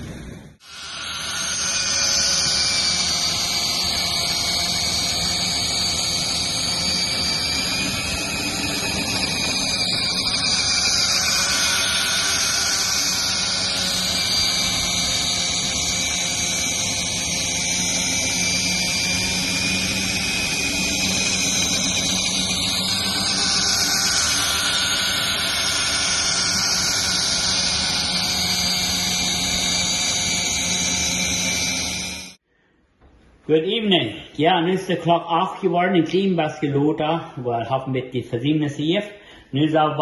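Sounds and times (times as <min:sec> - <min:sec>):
power tool whine: 0:00.0 - 0:32.4.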